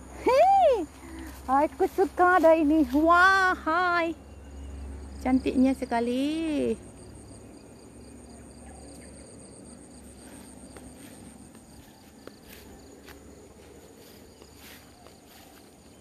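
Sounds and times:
insects trilling: 0:00.0 - 0:16.0
soft footsteps in grass: 0:00.8 - 0:03.7, 0:09.9 - 0:16.0.

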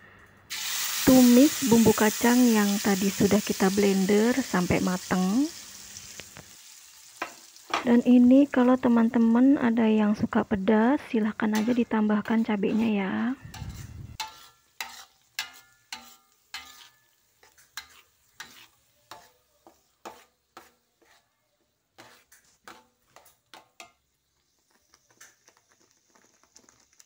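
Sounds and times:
faint sizzle: 0:00.0 - 0:27.0
spatula scraping wok: 0:11.1 - 0:27.0.

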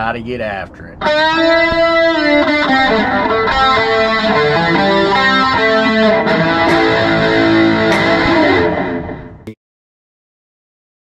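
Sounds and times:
electric guitar lead line: 0:01.0 - 0:09.6.

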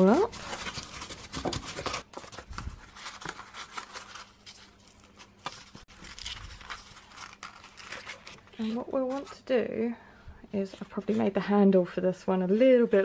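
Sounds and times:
cardboard folding and creasing: 0:00.0 - 0:09.4.

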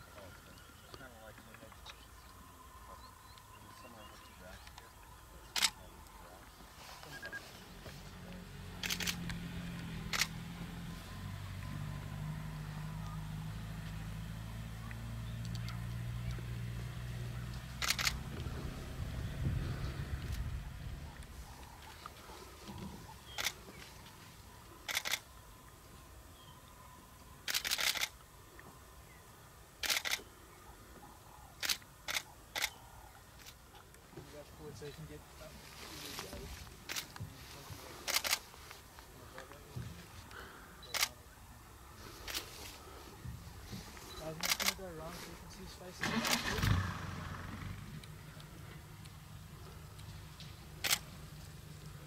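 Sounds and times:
vehicle engine idling: 0:02.9 - 0:30.6, 0:34.2 - 0:52.0
camera shutter clicks: 0:08.8 - 0:09.4, 0:10.1 - 0:10.4, 0:17.8 - 0:18.2, 0:24.9 - 0:25.3, 0:27.5 - 0:28.2, 0:29.8 - 0:30.3, 0:31.6 - 0:32.8, 0:38.1 - 0:38.4, 0:40.9 - 0:41.2, 0:44.4 - 0:44.8, 0:46.0 - 0:46.8, 0:50.8 - 0:51.1.

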